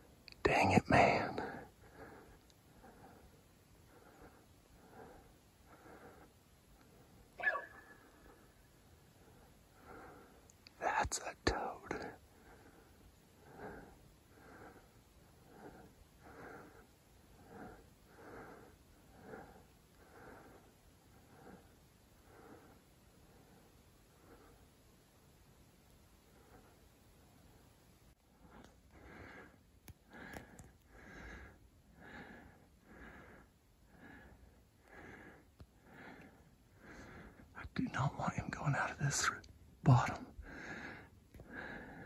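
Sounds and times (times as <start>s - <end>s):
person panting: 1.4s - 7.2s, 12.3s - 24.6s, 28.4s - 37.5s, 40.4s - 42.0s
person breathing quickly: 1.4s - 10.6s, 11.9s - 25.3s, 26.2s - 37.5s, 40.3s - 42.0s.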